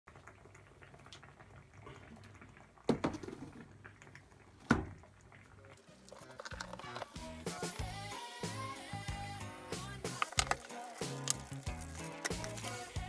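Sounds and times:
background music: 6.3s - 13.0s.

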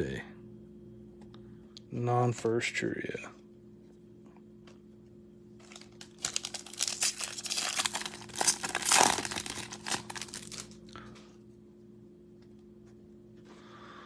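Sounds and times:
foil wrapper crinkling: 5.6s - 11.0s.

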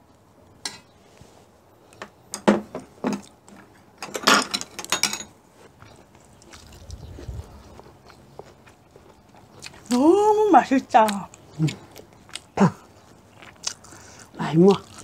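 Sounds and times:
spoons clinking on bowls: 4.1s - 5.3s.

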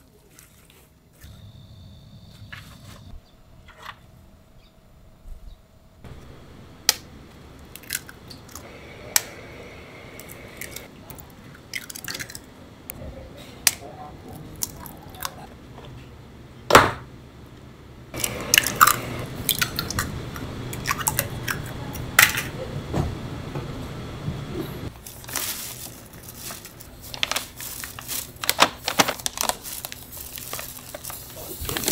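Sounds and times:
steady background hiss: 5.8s - 11.4s.

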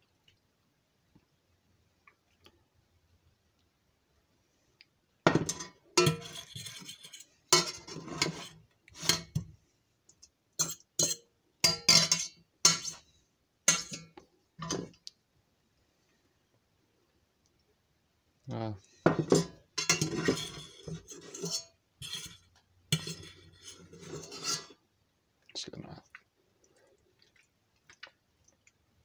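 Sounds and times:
fork scraping metal saucepan: 5.5s - 9.4s, 10.6s - 13.0s, 13.7s - 14.9s, 19.1s - 24.8s.

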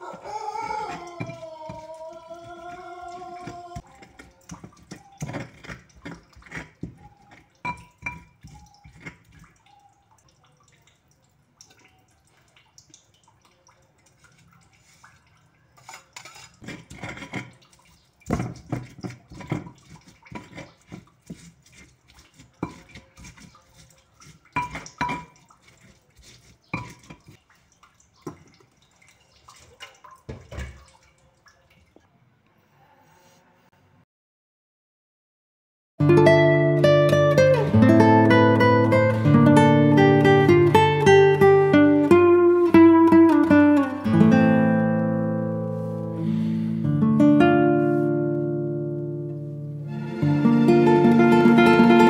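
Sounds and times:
stone pestle grinding in mortar: 0.6s - 9.3s, 15.9s - 17.5s, 18.3s - 27.4s.

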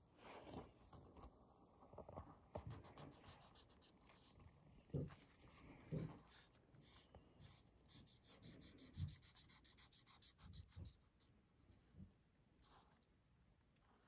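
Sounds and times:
marker scratching on card: 2.7s - 4.4s, 6.2s - 11.0s.

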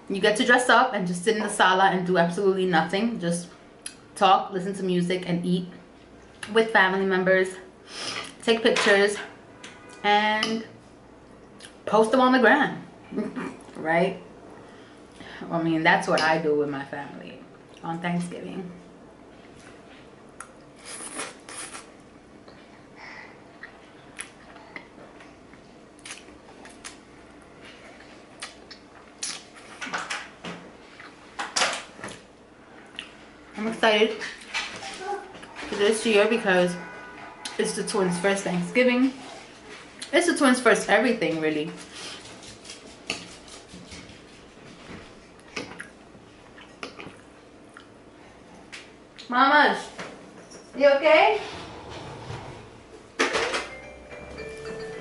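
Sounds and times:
chewing with wet mouth clicks: 23.5s - 24.9s, 25.5s - 27.4s, 28.4s - 29.6s, 45.4s - 48.0s.

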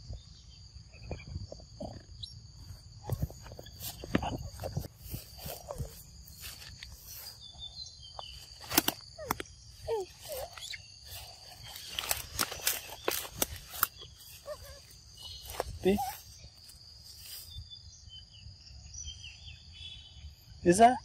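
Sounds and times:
high insect drone: 0.0s - 21.0s
footsteps through undergrowth: 2.6s - 17.6s
twigs snapping: 8.4s - 9.5s, 10.4s - 14.4s
short squeaky calls: 8.4s - 16.4s.

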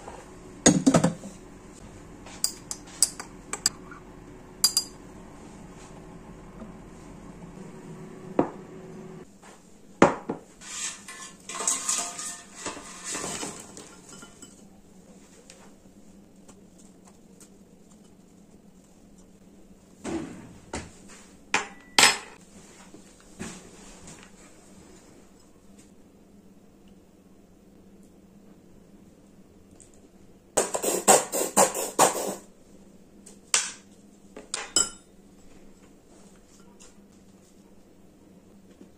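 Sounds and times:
fries rattling into a ceramic bowl: 10.7s - 14.5s.

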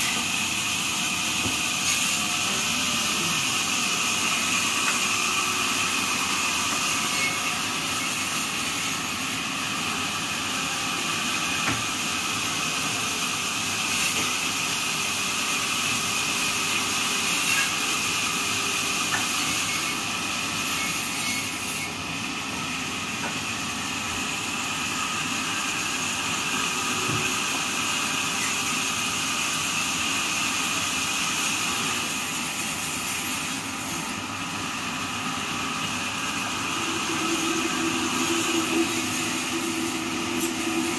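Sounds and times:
blade sharpening machine grinding: 1.8s - 9.5s, 31.5s - 40.9s.

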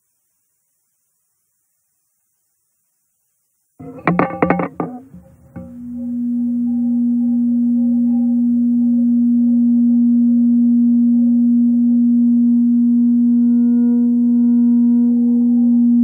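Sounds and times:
ambient drone: 3.8s - 16.0s.

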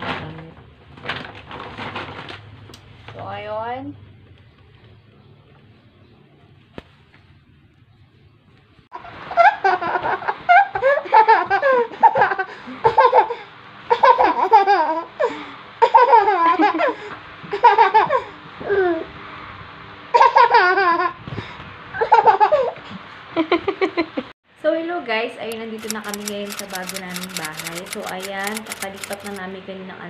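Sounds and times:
toddler laughing: 9.2s - 15.1s, 15.8s - 19.0s.

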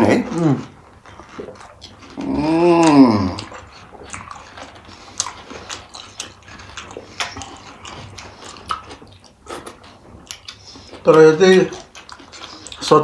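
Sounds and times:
people chewing crunchy food: 0.0s - 13.0s.

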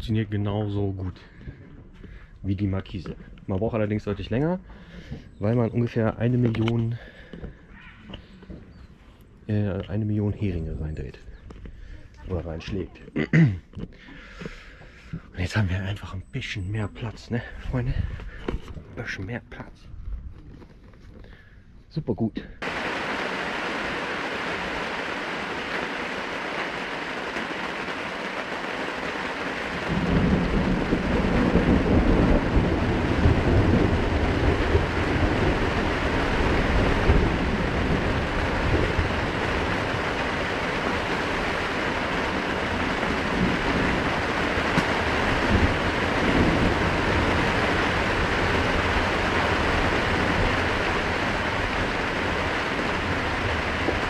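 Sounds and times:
heavy rain: 22.6s - 54.0s
thunder rumbling: 22.6s - 54.0s.

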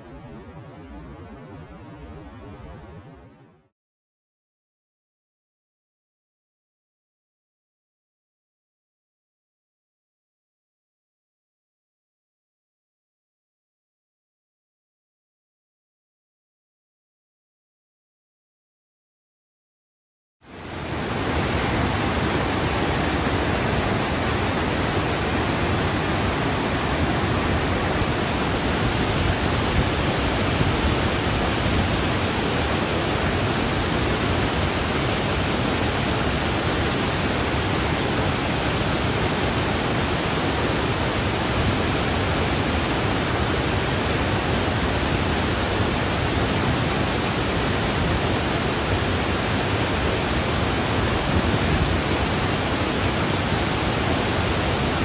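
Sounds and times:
waterfall rushing: 20.5s - 55.0s.

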